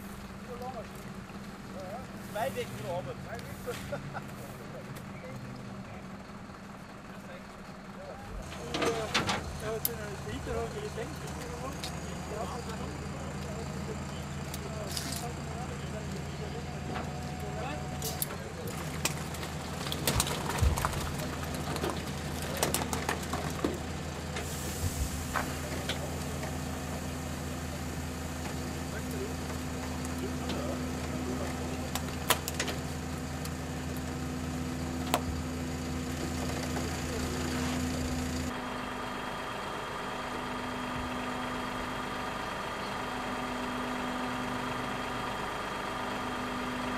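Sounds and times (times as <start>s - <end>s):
truck engine idling: 0.0s - 46.9s.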